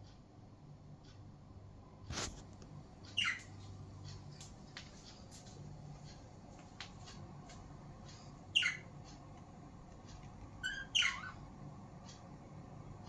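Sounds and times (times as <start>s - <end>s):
budgerigar squawks: 3.2s - 3.5s, 8.6s - 8.9s, 10.6s - 11.4s.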